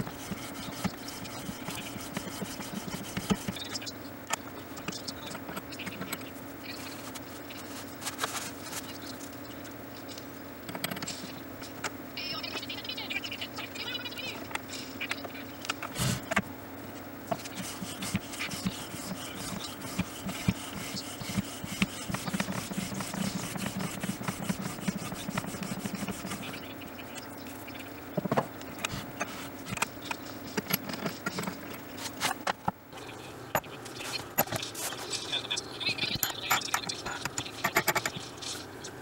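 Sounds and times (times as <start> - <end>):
blade scraping paper: 0.0 - 3.8, 5.5 - 9.1, 17.3 - 26.7.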